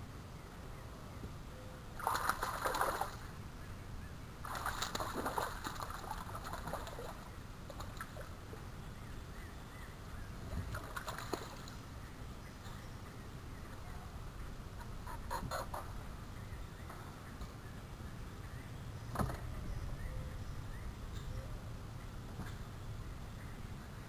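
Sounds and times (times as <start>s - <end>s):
fish splashing in water: 2.0s - 3.3s, 4.4s - 8.4s, 10.6s - 11.8s.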